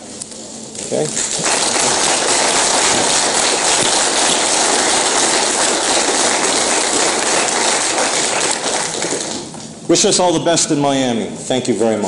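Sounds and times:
audience applauding: 1.2s - 9.7s.

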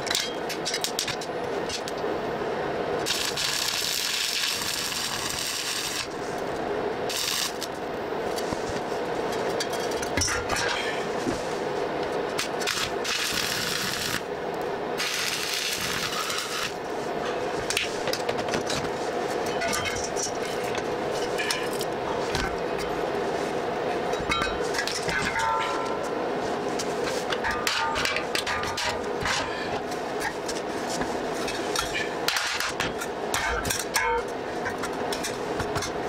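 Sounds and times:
welding arc crackling and hissing: 2.5s - 23.8s.

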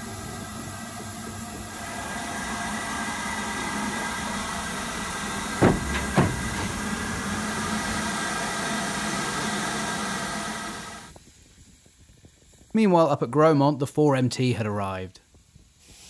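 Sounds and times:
steam locomotive hissing: 0.0s - 13.0s, 15.2s - 16.0s
sharp knocks: 5.5s - 7.4s.

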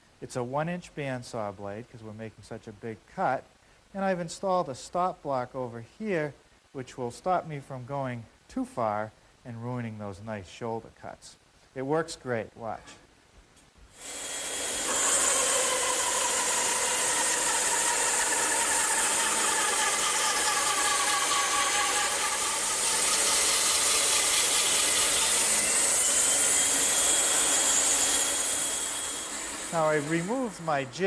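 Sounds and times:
bandsaw cutting wood: 14.0s - 31.0s.

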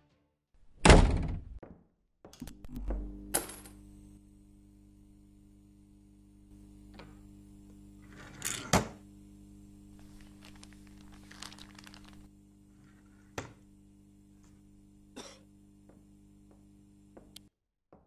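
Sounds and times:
low electrical hum: 2.4s - 17.5s.

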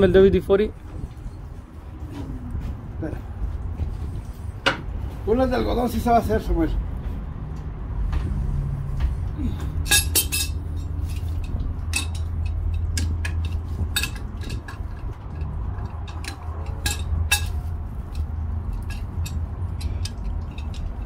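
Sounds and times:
wrenches clinking on metal: 9.7s - 21.0s.

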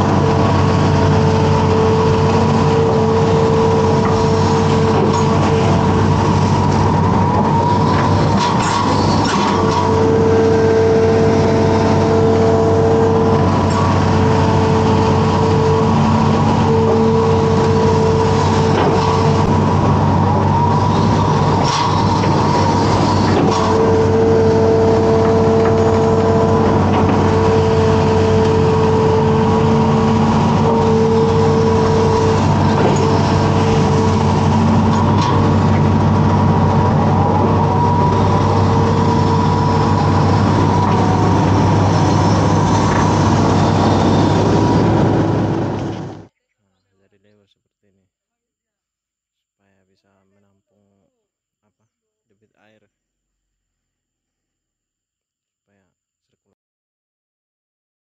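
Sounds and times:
diesel engine running under load: 0.0s - 46.3s
hydraulic whine: 0.0s - 46.4s.

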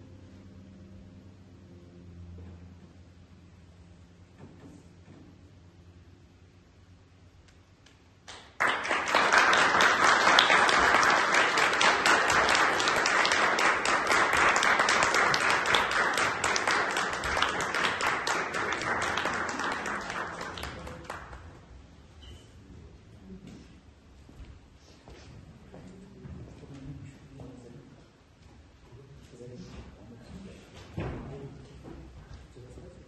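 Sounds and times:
audience applauding: 8.3s - 21.7s.

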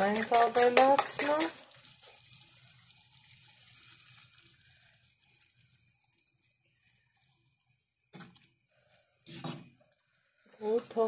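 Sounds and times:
mushrooms sizzling in a pan: 0.0s - 8.3s.

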